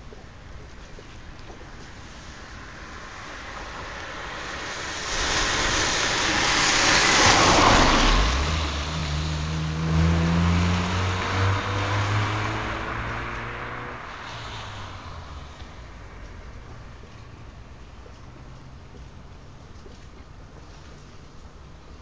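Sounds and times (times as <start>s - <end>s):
tyre and road noise: 0.0s - 22.0s
car engine accelerating: 6.0s - 16.8s.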